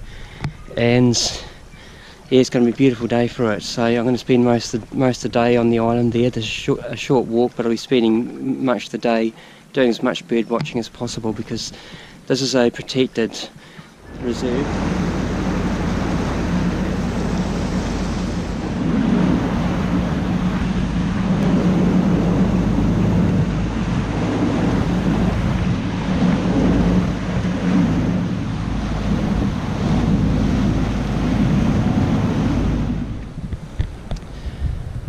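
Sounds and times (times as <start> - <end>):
water rushing and splashing: 0.0 - 35.0
wind buffeting microphone: 9.8 - 35.0
motorboat engine drone: 13.6 - 35.0.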